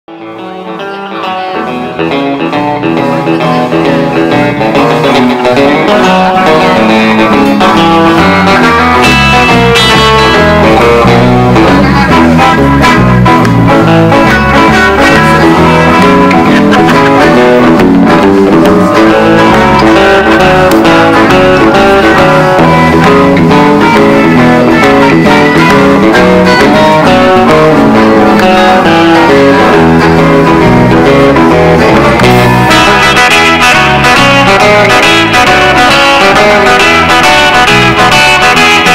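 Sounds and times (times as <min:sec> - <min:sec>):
country band playing: 0:00.1 - 0:38.9.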